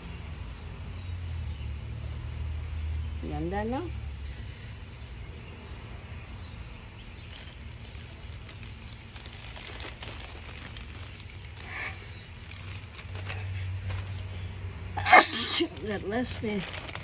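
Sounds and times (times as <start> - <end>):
plastic bag crinkling: 7.2 - 14.5, 15.1 - 17.0.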